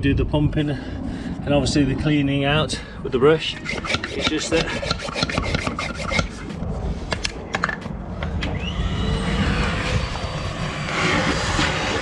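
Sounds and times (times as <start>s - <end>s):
vacuum cleaner motor whine: 8.4s - 12.0s.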